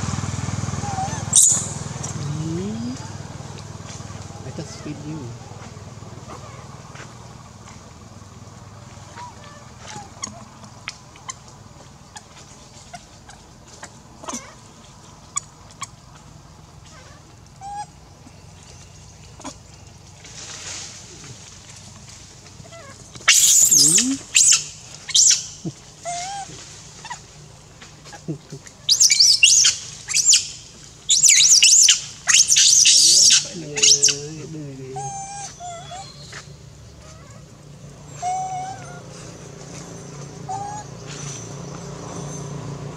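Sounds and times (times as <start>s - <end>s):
animal squeal: 0.8s - 1.6s, 22.7s - 25.4s, 26.0s - 27.2s, 28.8s - 30.4s, 31.1s - 36.3s, 38.1s - 39.1s, 40.5s - 40.9s
macaque screaming: 0.8s - 1.7s, 22.7s - 27.2s, 28.8s - 30.5s, 31.1s - 36.2s, 38.2s - 39.1s, 40.5s - 40.9s
lower-pitched voice: 2.1s - 3.2s, 23.8s - 24.3s, 33.4s - 35.3s.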